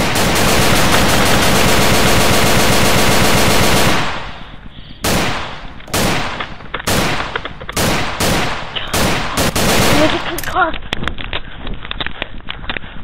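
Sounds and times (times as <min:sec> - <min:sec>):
single gunshots with echo: 0:00.0 - 0:10.4
rapid gunfire: 0:00.0 - 0:10.6.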